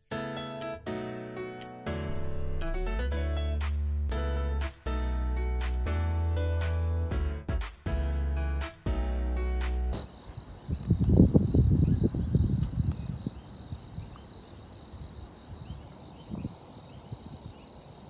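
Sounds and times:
music: 0.0 - 10.1
crickets chirping: 10.0 - 18.0.

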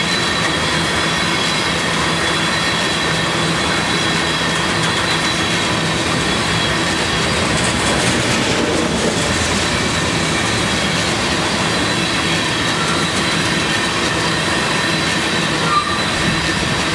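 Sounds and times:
steel train wheels rolling on rail: 0.0 - 16.9.

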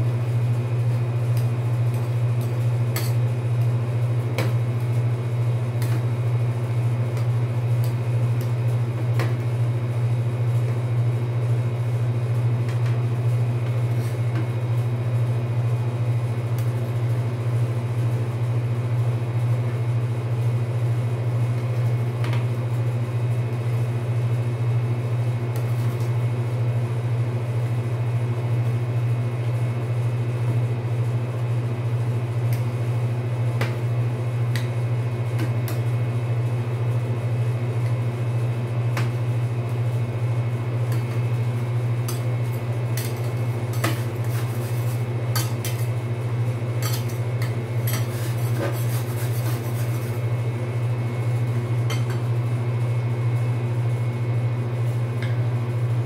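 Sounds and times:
refrigeration unit humming: 0.0 - 56.0
metal spatulas tapping and scraping: 43.0 - 45.9, 46.8 - 50.2.

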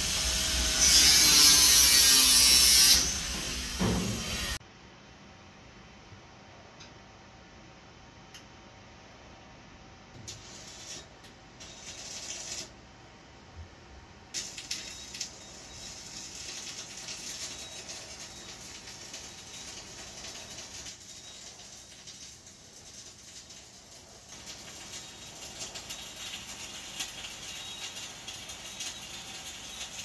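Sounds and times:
welding arc hissing: 0.0 - 4.6, 10.2 - 12.8, 14.4 - 30.0.

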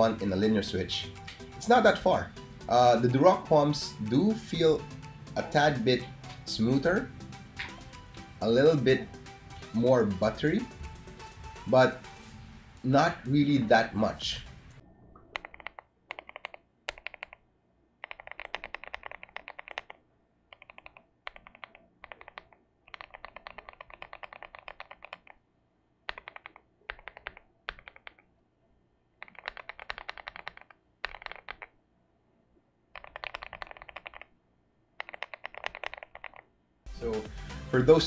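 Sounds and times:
mechanical keyboard typing: 15.3 - 17.4, 18.0 - 25.4, 26.1 - 28.2, 29.2 - 31.8, 33.0 - 34.3, 35.0 - 36.5.

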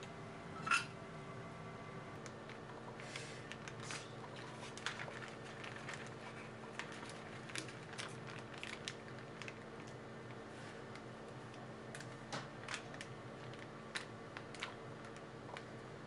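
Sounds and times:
steady low hum: 0.0 - 16.0
plastic pouch crinkling: 3.4 - 10.0, 12.0 - 15.7.

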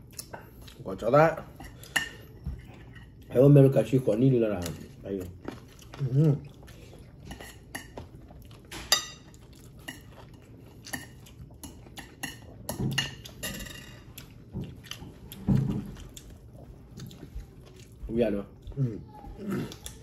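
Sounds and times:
cutlery clinking against dishes: 1.5 - 3.2, 7.2 - 16.2.

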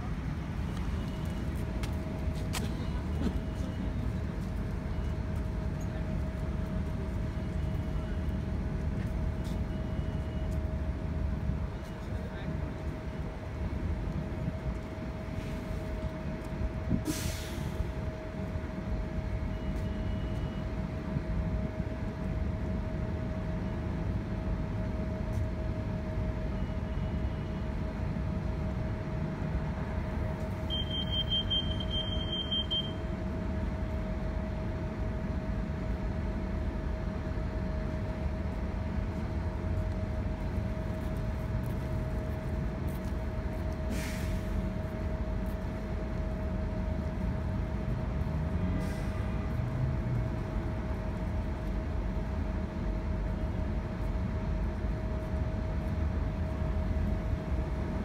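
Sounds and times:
bus engine rumble: 0.0 - 58.0
short hiss: 17.0 - 17.8, 43.9 - 44.6.

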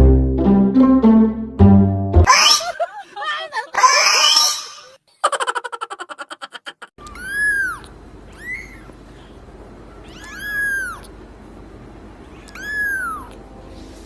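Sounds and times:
kitten meowing: 2.3 - 2.6, 7.0 - 8.9, 10.0 - 11.1, 12.4 - 13.4.

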